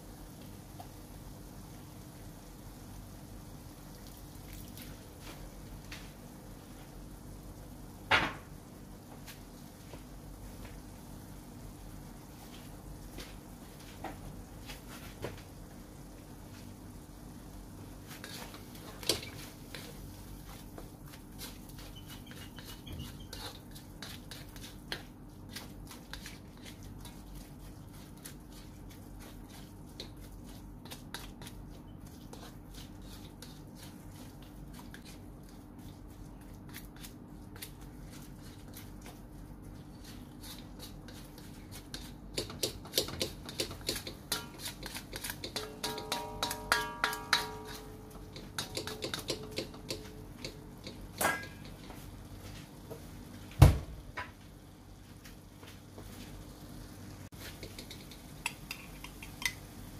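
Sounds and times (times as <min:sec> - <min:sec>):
steady low hum: 0:00.0 - 0:59.9
spatula scraping a metal wok: 0:18.1 - 0:20.0, 0:21.3 - 0:35.2, 0:40.0 - 0:51.8.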